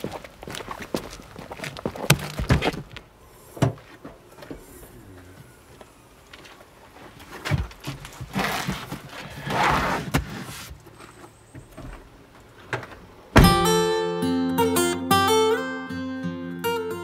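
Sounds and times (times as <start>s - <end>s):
rustling: 1.4s - 13.1s
heavy thud: 13.4s - 13.8s
fingerpicked acoustic guitar music: 13.4s - 17.0s.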